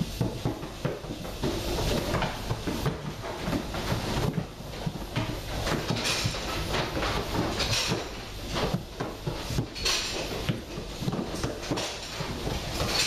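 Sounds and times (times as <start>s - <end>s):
steady background noise: 0.0s - 13.0s.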